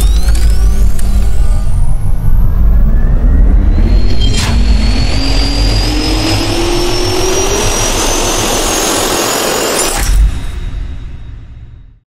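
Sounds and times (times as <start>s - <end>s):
jet turbine spooling up: 0.0s - 10.5s.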